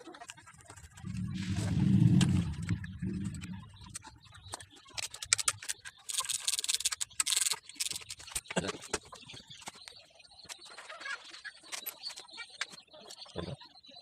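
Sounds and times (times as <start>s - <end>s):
metal tools clicking and rattling: 5.0s - 9.0s.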